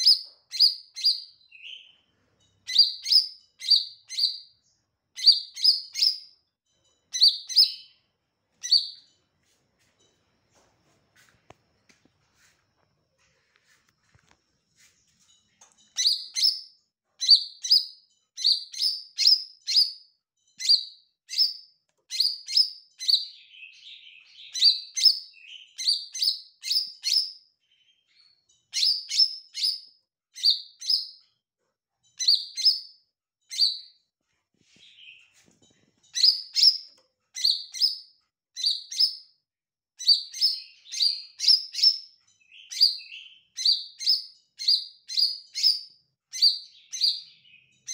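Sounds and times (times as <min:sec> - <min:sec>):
bird twittering softly: 0:00.0 - 0:09.2, 0:14.8 - 0:31.2, 0:34.7 - 0:39.3.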